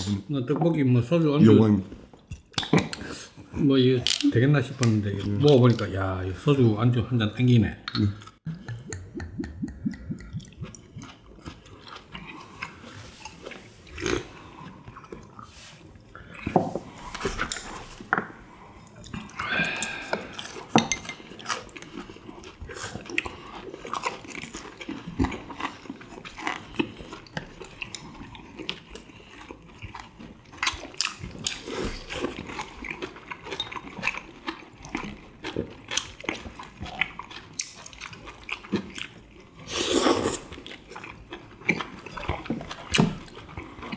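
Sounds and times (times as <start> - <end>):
crunching and chewing: 10.4 - 43.9.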